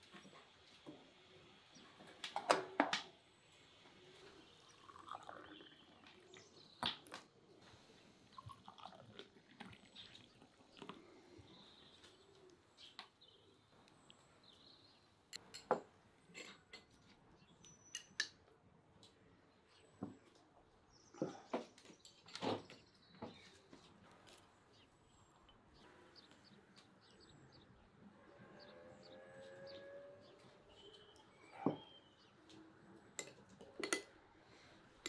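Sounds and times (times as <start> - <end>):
tea pouring into a glass cup: 4.4 - 6.2, 8.3 - 10.9
spoon and glasses clinking: 15.4 - 16.9, 33.2 - 34.1.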